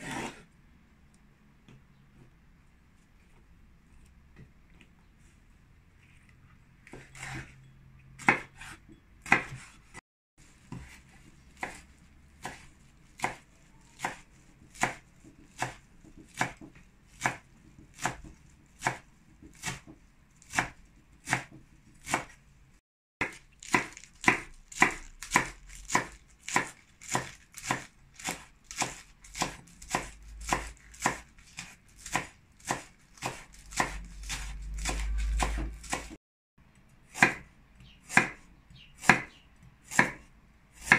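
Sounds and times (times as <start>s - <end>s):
knife chopping on cutting board: 0.0s - 0.4s, 6.9s - 7.5s, 8.2s - 10.0s, 10.7s - 22.4s, 23.2s - 36.2s, 37.1s - 38.4s, 39.0s - 40.9s.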